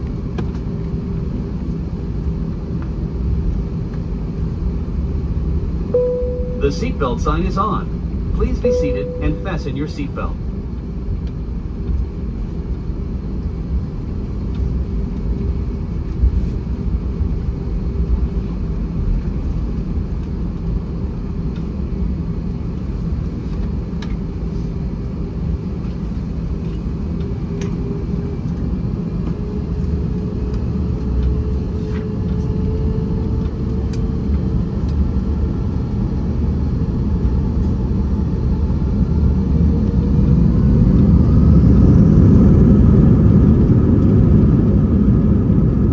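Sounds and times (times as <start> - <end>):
aircraft cabin engine rumble: 0.0 - 45.9
engine tone: 5.8 - 10.5.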